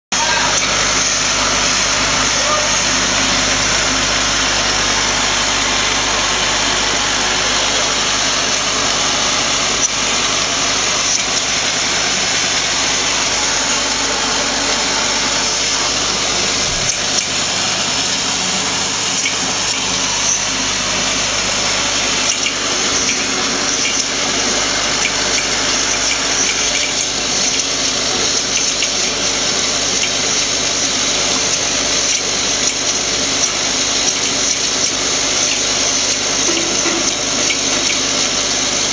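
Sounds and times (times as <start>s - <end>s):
vibratory bowl feeder rattling: 0.2s - 38.9s.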